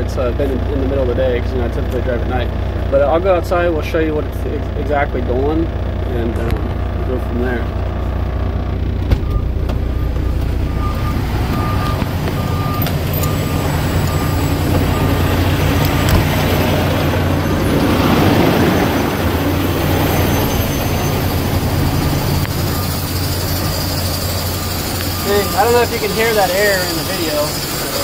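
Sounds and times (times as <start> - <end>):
truck diesel engine idling: 0.0 - 28.0
electronic warning beeping: 9.2 - 28.0
cab door opening: 11.5 - 16.7.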